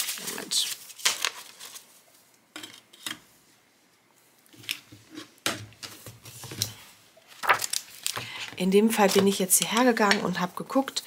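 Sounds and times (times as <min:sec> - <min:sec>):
paper rustling: 0:00.0 - 0:02.2, 0:05.8 - 0:10.4.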